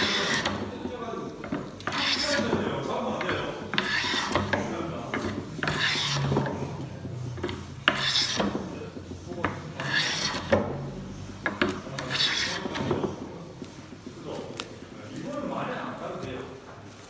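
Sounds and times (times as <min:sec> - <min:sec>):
hand plane shaving wood: 0:00.0 - 0:00.7, 0:01.8 - 0:02.6, 0:03.6 - 0:06.7, 0:07.4 - 0:10.9, 0:11.6 - 0:13.7.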